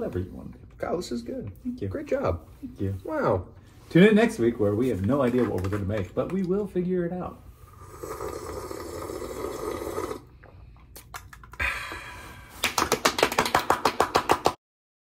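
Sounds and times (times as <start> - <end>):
person slurping soup: 7.6 - 11.6
people clapping quickly: 12.5 - 14.6.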